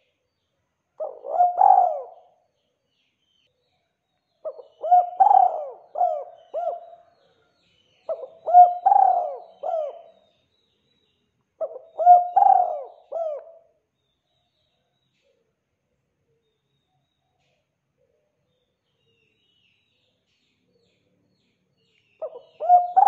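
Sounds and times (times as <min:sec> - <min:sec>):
dove cooing: 0:01.0 - 0:02.4, 0:04.5 - 0:07.1, 0:08.1 - 0:10.2, 0:11.6 - 0:13.7, 0:22.2 - 0:23.0.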